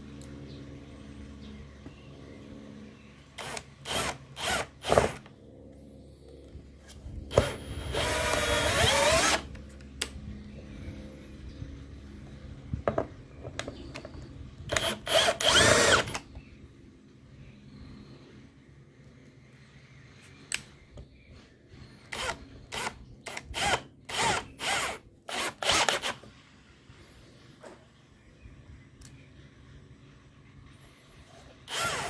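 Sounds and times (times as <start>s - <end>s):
cordless drill driving screws: 3.4s - 5.2s, 7.3s - 9.6s, 14.7s - 16.2s, 22.1s - 26.3s, 31.7s - 32.0s.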